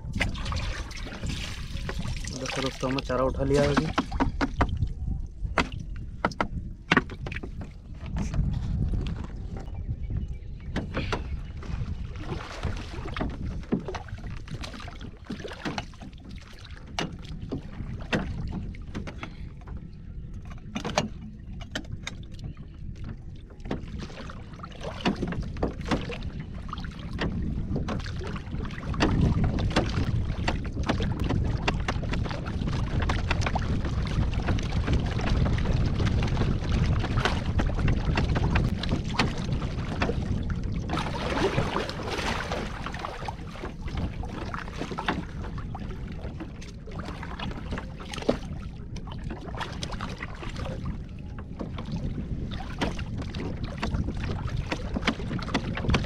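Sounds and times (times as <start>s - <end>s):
water lapping at boat: 0.0s - 56.0s
wind rumbling on microphone: 0.0s - 56.0s.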